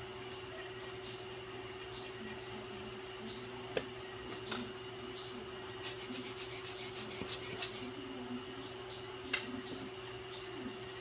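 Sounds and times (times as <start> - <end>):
brush scrubbing small metal part: 5.9 - 7.8.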